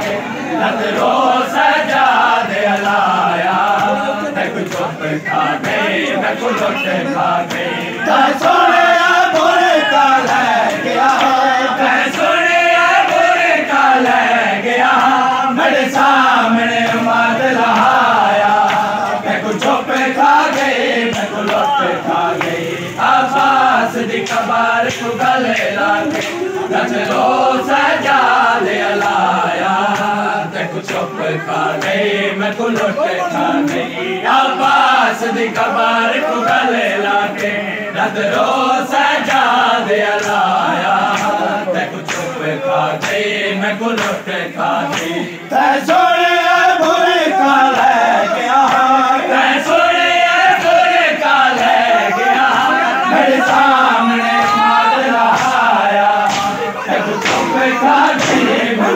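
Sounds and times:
crowd of men chanting: 0.0 - 58.9
hands slapping bare chests: 17.7 - 21.8, 23.3 - 26.5, 40.2 - 41.4, 42.0 - 43.2, 43.9 - 44.2, 44.8 - 45.2, 53.4 - 58.8.

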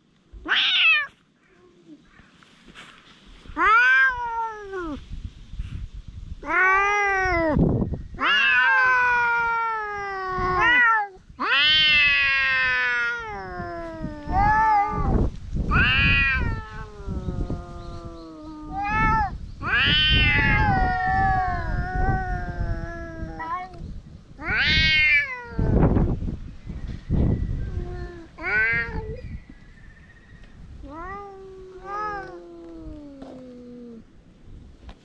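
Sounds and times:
cats yowling: 0.4 - 1.2, 3.6 - 5.0, 6.4 - 7.6, 8.2 - 23.8, 24.4 - 25.9, 27.7 - 29.2, 30.8 - 34.1.

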